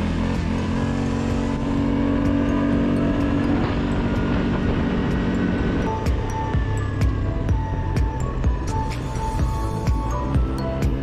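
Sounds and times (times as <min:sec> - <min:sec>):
atv engine running: 0:00.0 - 0:11.0.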